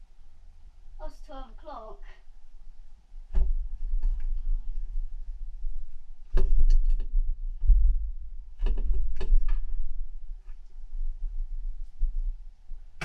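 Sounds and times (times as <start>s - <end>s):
low rumble: 2.4s - 13.0s
knocks and bumps: 3.3s - 12.2s.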